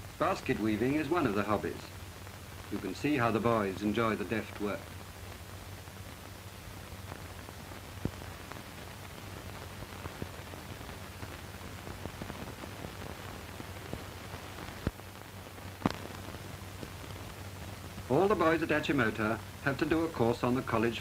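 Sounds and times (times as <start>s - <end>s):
crackles and pops: 0.0s - 21.0s
film soundtrack hiss: 0.0s - 21.0s.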